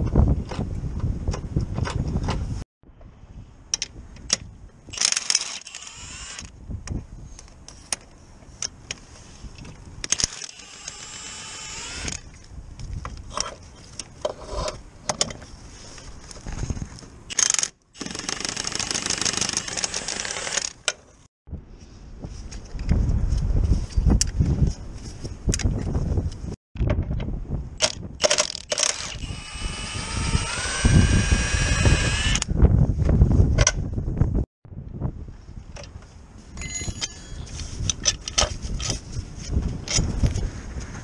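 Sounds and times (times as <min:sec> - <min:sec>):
metallic clinks of hand tools: 0:36.6 - 0:37.6.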